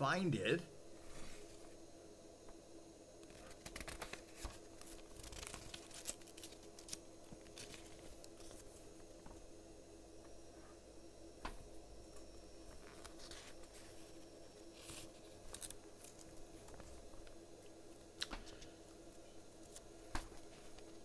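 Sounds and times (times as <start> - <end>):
faint steady hum: 0.0 - 21.0
crisp paper ticks: 3.3 - 8.6
paper pages rustling: 3.3 - 8.7, 12.8 - 14.0.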